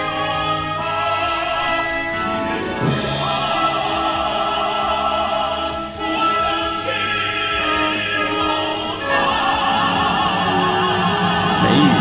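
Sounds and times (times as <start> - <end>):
men singing opera: 0.0 - 12.0
orchestra playing: 0.0 - 12.0.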